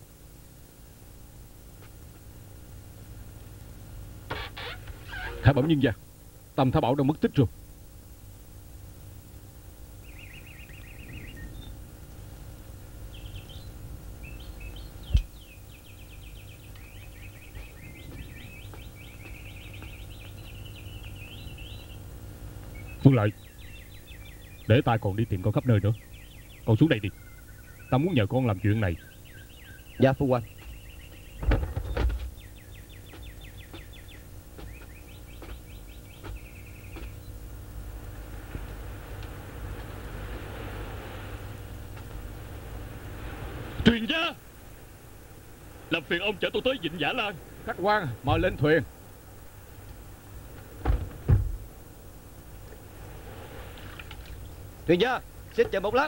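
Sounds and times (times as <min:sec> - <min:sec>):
songbirds chirping in trills: 0:00.0 - 0:56.0
high chirping trills: 0:13.0 - 0:31.5.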